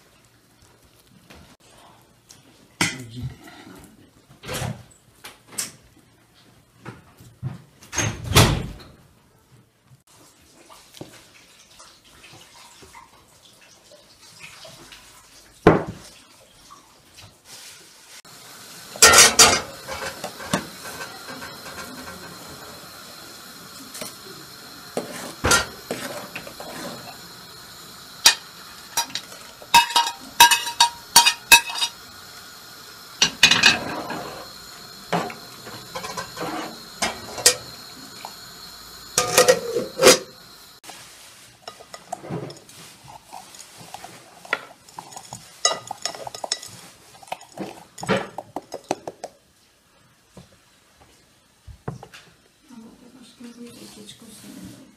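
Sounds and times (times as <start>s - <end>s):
pot boiling: 18.1s - 50.5s
metal ladle scraping pot: 18.8s - 40.5s.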